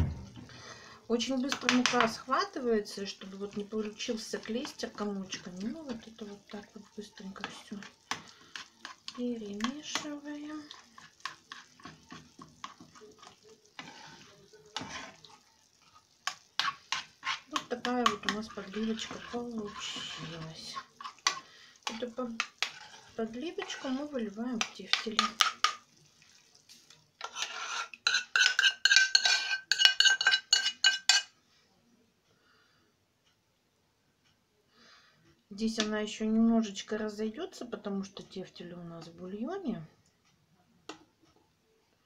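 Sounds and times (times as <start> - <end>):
spoon scraping a frying pan: 1.2 - 25.9, 26.7 - 31.4.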